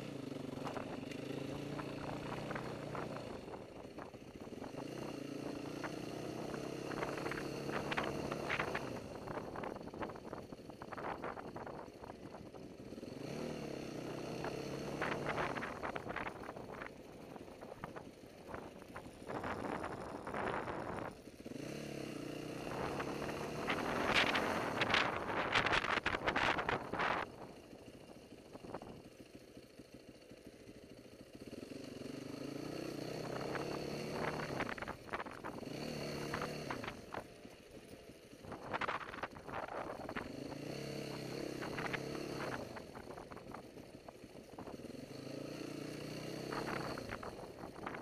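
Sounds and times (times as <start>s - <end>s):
dirt bike engine revving: 0.0s - 3.5s, 4.6s - 9.6s, 12.9s - 16.9s, 17.6s - 27.3s, 31.4s - 37.2s, 38.6s - 43.5s, 44.6s - 48.0s.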